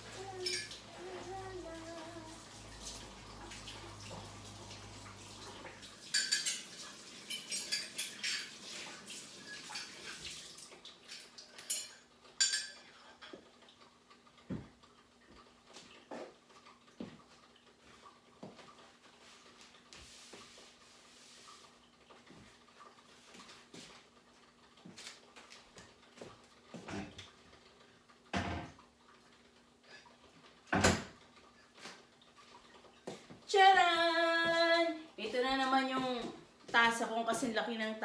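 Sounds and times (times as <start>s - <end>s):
dishes and cutlery clattering: 0.2s - 0.9s, 6.0s - 8.8s, 9.4s - 10.2s, 11.1s - 13.4s.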